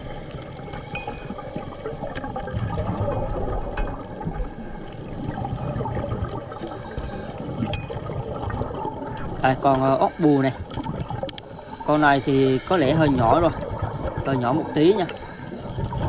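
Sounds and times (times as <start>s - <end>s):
air bubbles gurgling underwater: 0.0s - 16.0s
dense steady crackling: 0.0s - 16.0s.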